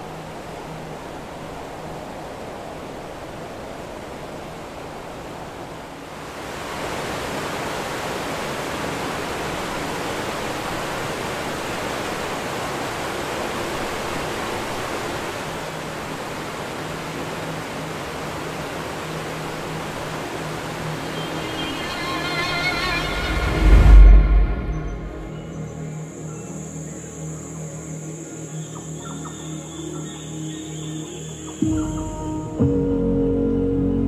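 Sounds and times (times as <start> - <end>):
waterfall roaring: 0.0 - 25.3.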